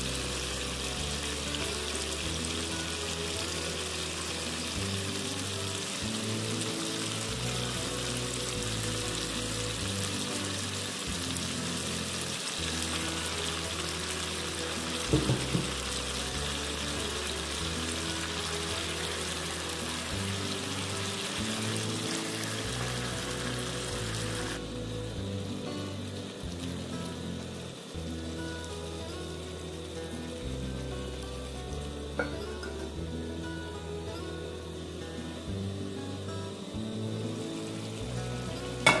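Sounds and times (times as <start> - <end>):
background music with low held notes: 0.0 - 39.0
chicken sizzling in oil: 0.0 - 39.0
loud knock: 15.1 - 15.8.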